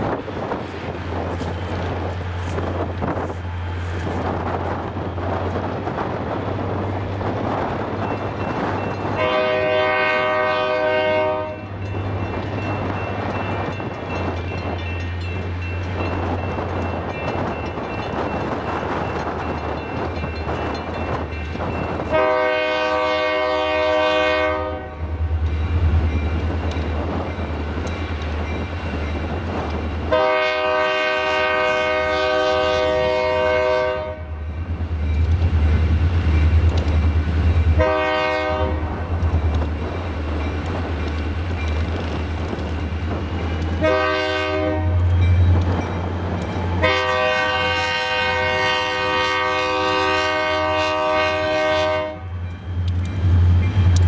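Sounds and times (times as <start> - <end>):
low train rumble: 0.0 - 54.0
locomotive air horn blasts: 9.2 - 11.8, 22.1 - 25.2, 30.1 - 34.4, 37.8 - 39.1, 43.8 - 45.1, 46.8 - 52.4.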